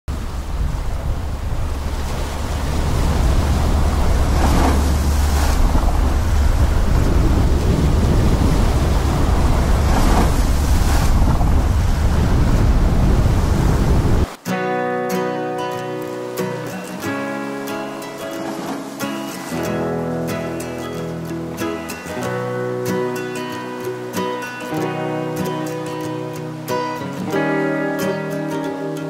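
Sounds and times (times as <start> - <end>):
wind rumble on microphone: 0.1 - 14.4
surf breaking on shingle: 1.9 - 12.6.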